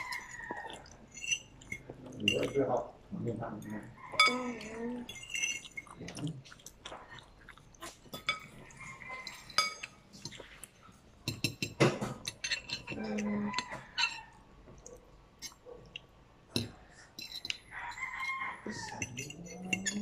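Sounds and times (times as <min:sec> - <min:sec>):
chewing: 0:00.0 - 0:11.5, 0:12.1 - 0:20.0
fork clinking on a plate: 0:04.1 - 0:05.9, 0:08.1 - 0:10.5, 0:11.2 - 0:14.3, 0:16.5 - 0:20.0.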